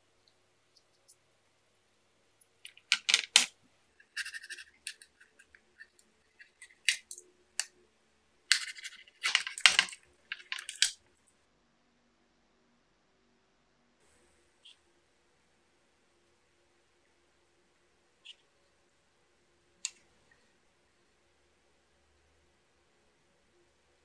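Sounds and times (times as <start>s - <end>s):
plastic clicks: 2.6s - 3.5s, 8.5s - 11.0s
rustles and scrapes: 4.0s - 7.1s.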